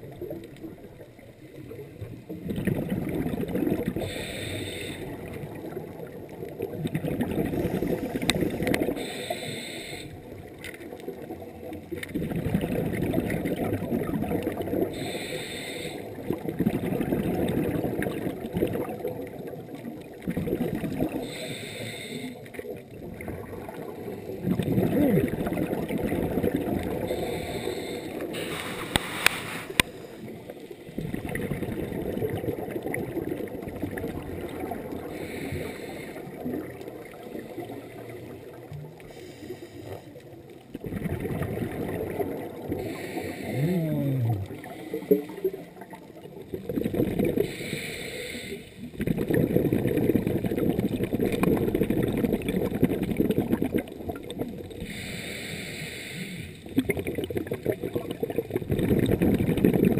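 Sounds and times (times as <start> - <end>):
exhaled bubbles rumbling: 0.0 - 9.2, 10.2 - 15.2, 16.0 - 21.6, 22.5 - 39.3, 39.9 - 47.6, 48.8 - 55.1, 56.6 - 59.9
regulator inhalation hiss: 4.0 - 5.2, 8.9 - 10.2, 15.0 - 16.1, 21.2 - 22.5, 27.0 - 30.3, 35.2 - 36.3, 39.1 - 40.1, 42.8 - 43.6, 47.4 - 48.8, 54.8 - 56.7.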